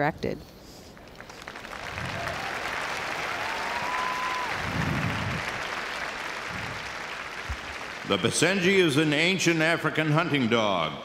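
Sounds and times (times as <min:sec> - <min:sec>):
audience applauding: 0:01.0 - 0:10.8
cheering call: 0:01.8 - 0:08.9.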